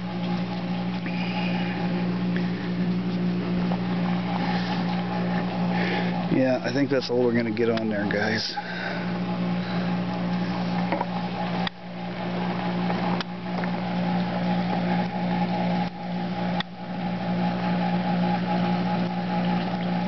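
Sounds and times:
low motor hum: 0.0s - 20.0s.

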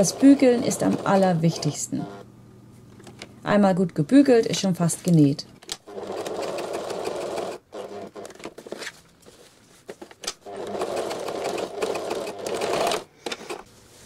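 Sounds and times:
sewing machine stitching: 5.8s - 8.4s, 10.4s - 13.6s.

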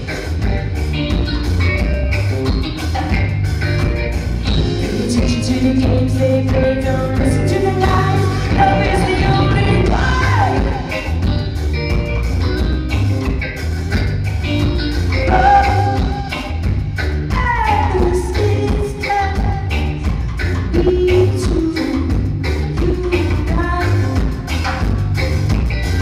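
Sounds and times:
bass guitar: 0.0s - 26.0s
drum kit: 0.0s - 26.0s
electric guitar: 0.0s - 26.0s
woman singing lead: 4.4s - 11.4s, 15.2s - 25.0s.

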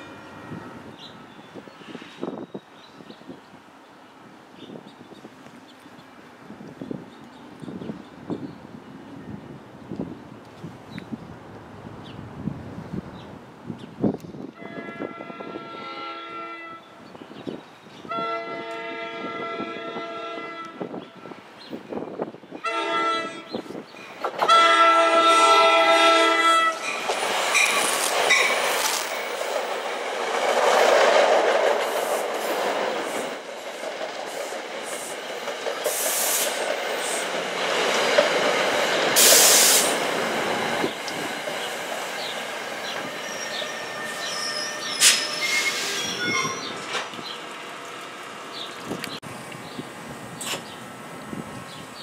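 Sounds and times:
train horn blasts: 0.0s - 1.2s, 14.6s - 17.0s, 18.0s - 21.4s, 22.6s - 23.6s, 24.4s - 26.9s
train wheels rumbling on rails: 23.6s - 52.0s.

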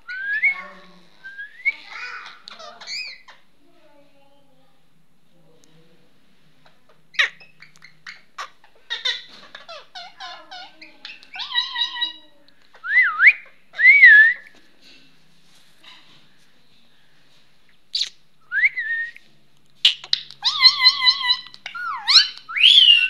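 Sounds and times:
parakeets chattering: 0.0s - 3.5s, 6.9s - 14.4s, 19.8s - 23.0s.

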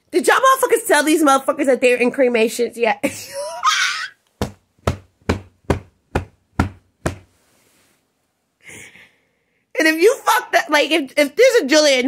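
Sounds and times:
sharp knocks: 4.4s - 7.4s.

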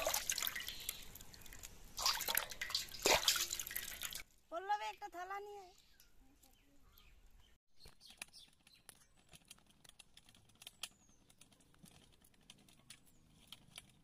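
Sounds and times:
faint small clicks and ticks: 7.8s - 14.0s.

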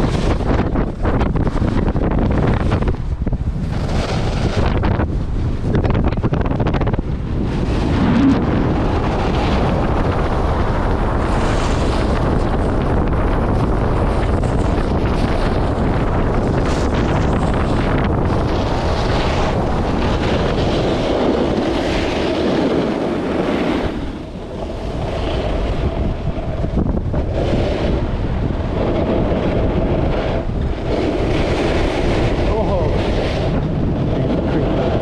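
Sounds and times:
skis scraping over packed snow: 0.0s - 35.0s
wind buffeting microphone: 0.0s - 35.0s.

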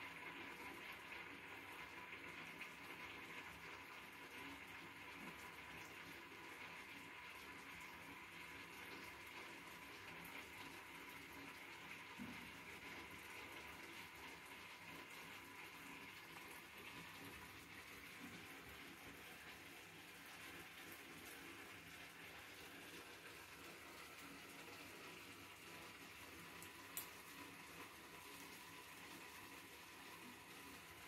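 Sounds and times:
faint steady hiss: 0.0s - 31.0s.

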